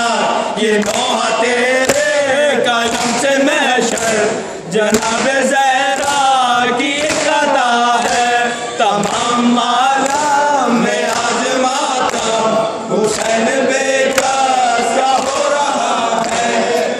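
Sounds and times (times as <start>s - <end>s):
men chanting a lament: 0.0s - 16.9s.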